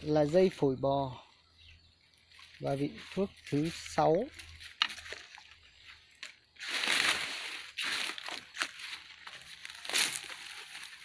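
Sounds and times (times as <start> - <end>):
leaves and stems rustling: 2.2 - 11.0.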